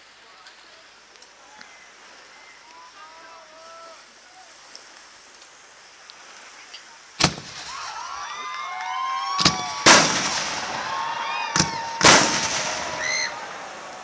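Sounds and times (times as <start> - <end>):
firework shell bursts: 7.2 - 7.8, 9.4 - 10.8, 11.6 - 13.3
firework bang: 7.2 - 8.0, 9.4 - 13.4
firework whistles: 7.2 - 13.6.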